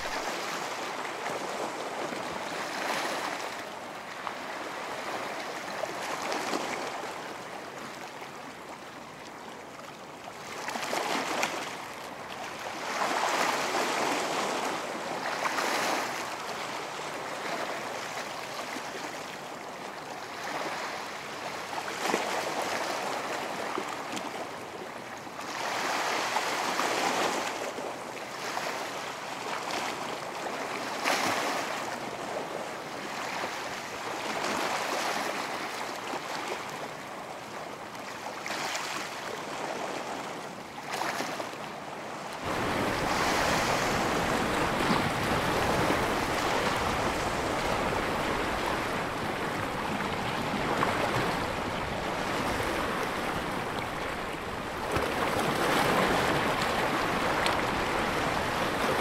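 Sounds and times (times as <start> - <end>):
waves breaking on beach: 0.0 - 59.0.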